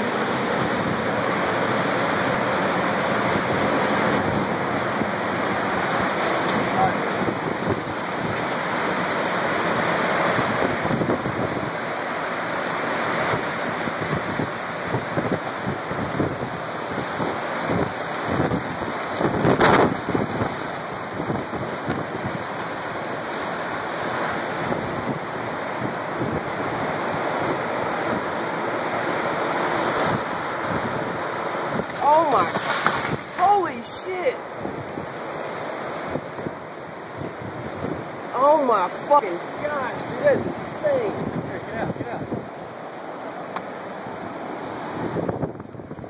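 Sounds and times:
tornado wind rushing: 0.0s - 46.0s
wind gusts buffeting microphone: 0.0s - 46.0s.

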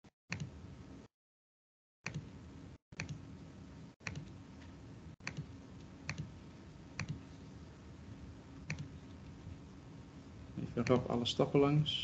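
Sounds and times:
low steady hum: 2.1s - 12.0s
computer clicking: 4.0s - 4.3s, 5.2s - 6.3s, 7.0s - 7.2s, 8.6s - 9.0s.

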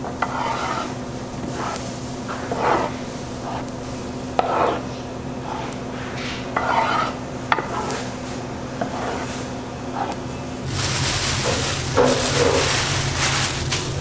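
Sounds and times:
low hum: 10.2s - 14.0s.

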